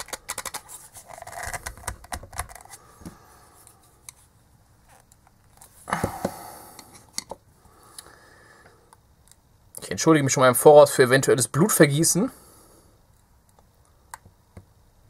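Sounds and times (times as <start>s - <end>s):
plastic clicking: 0.0s - 2.7s
plastic scraping: 0.0s - 2.8s.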